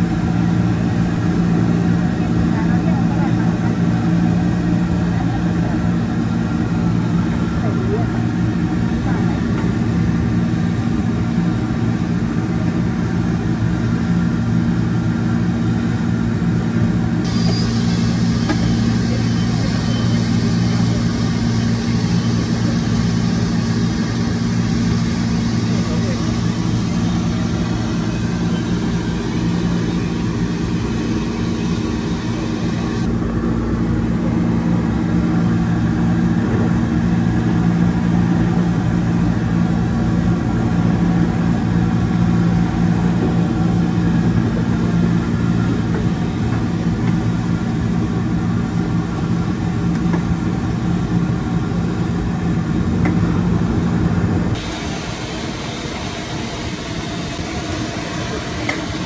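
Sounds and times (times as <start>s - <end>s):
mechanical hum: 0.0s - 59.0s.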